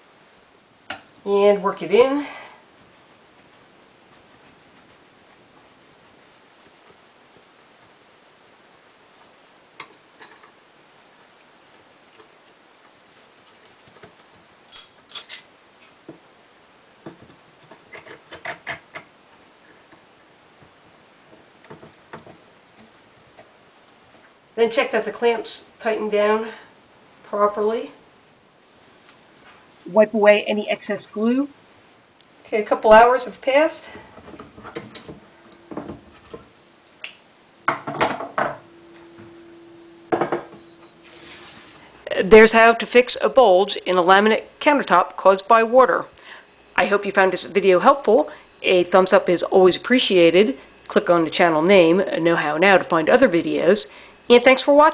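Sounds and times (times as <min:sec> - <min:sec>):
faint steady tone: 0:00.0 - 0:42.4.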